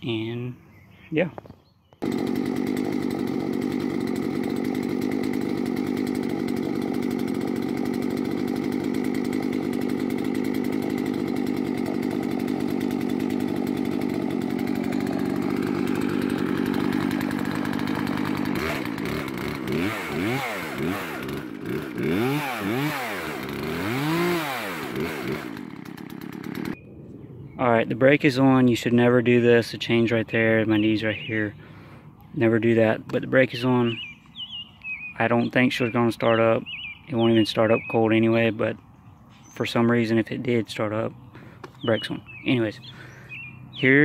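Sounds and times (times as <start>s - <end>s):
chainsaw recoil starter pulls: 2.0s - 26.8s
motor drone: 2.0s - 27.4s.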